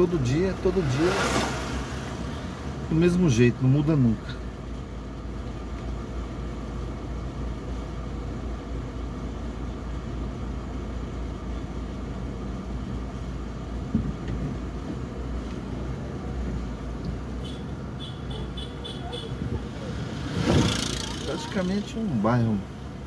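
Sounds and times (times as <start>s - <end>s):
car idling: 0.0s - 23.0s
short thump: 13.9s - 14.6s.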